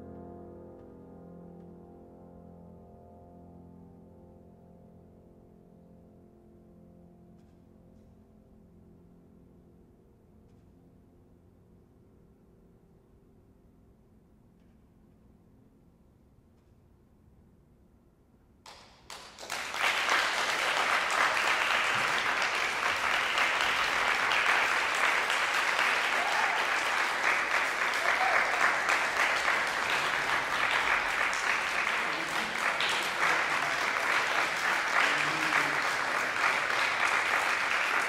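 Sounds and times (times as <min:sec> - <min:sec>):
audience applause: 0:18.7 - 0:38.0.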